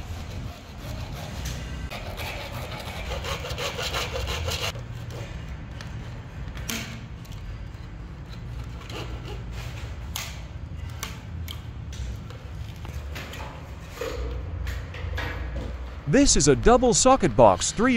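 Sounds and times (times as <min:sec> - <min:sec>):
hacksaw sawing plastic conduit: 0:00.0 - 0:04.8, 0:08.6 - 0:10.3.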